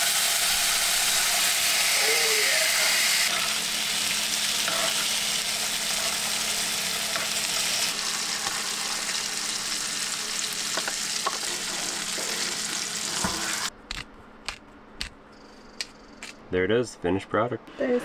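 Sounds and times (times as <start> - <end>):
steaks sizzling in a pan: 0.0 - 13.7.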